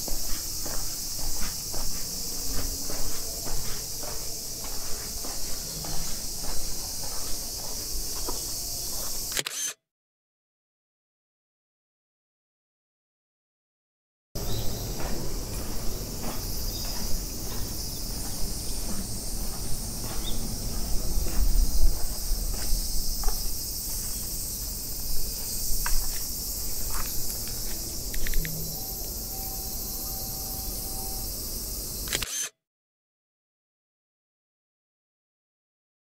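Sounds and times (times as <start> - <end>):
high-pitched insect chorus: 0.0 - 9.4, 14.4 - 32.5.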